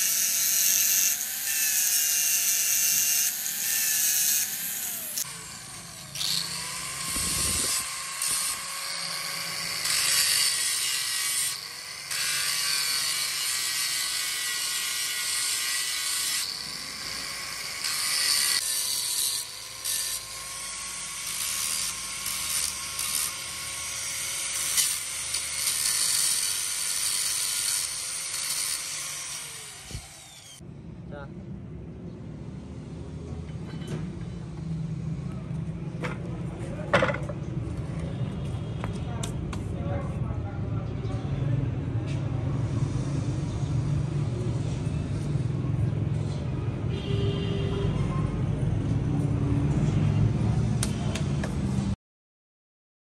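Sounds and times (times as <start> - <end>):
angle grinder grinding steel: 0.0 - 30.6.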